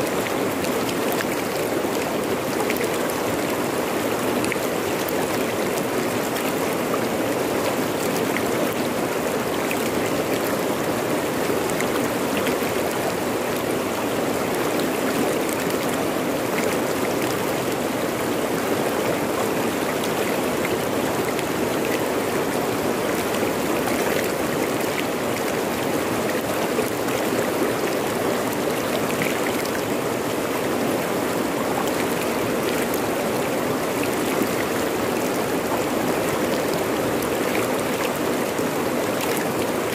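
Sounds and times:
river rushing over rocks: 0.0s - 39.9s.

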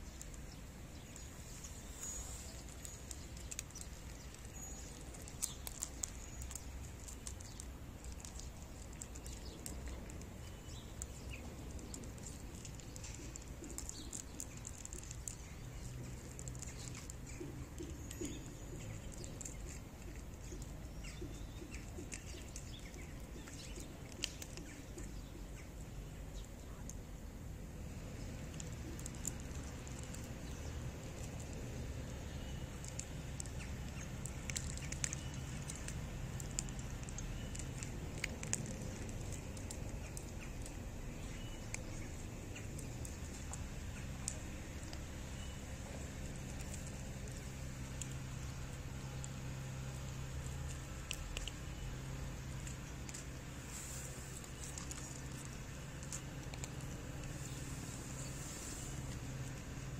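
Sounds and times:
bird chirps: 39.4s - 49.2s
small clicks and taps: 50.0s - 51.8s.

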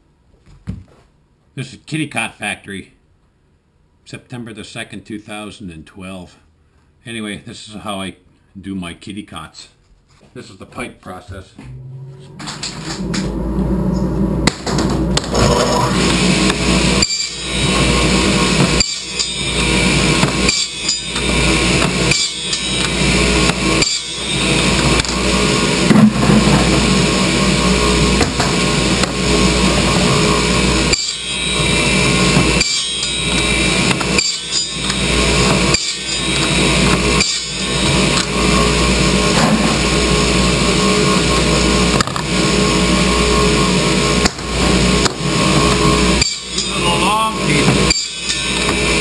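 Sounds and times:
saw cutting plastic pipe: 15.2s - 26.1s, 28.1s - 38.7s, 45.0s - 49.0s.

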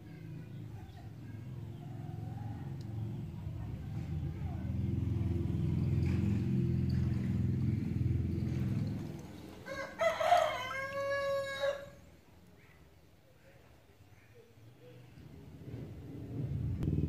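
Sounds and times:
low engine rumble: 0.0s - 12.2s, 14.8s - 17.0s
rooster crowing: 9.6s - 12.1s.

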